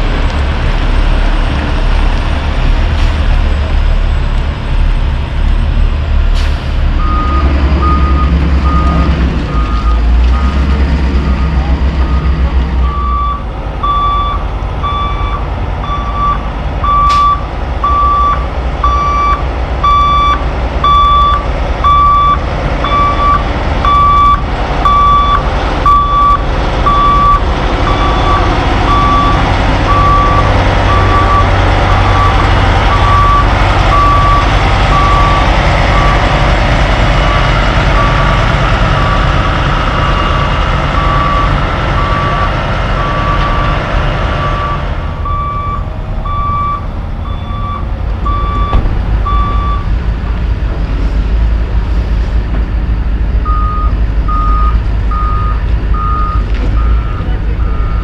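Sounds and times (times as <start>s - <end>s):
diesel truck engine: 0.0s - 58.0s
backup alarm beeping: 7.0s - 36.2s, 44.4s - 49.9s.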